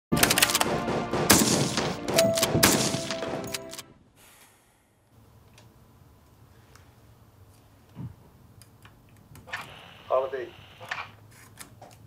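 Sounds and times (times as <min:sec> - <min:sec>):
film music: 0:00.1 - 0:04.0
rapid gunfire and impacts: 0:00.2 - 0:03.8.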